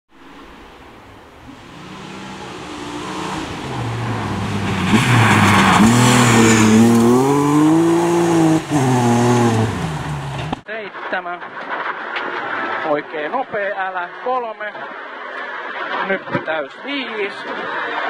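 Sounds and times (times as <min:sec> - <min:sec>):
gravel spraying from tyres: 0:00.2 - 0:18.0
rally car engine revving: 0:01.4 - 0:10.6.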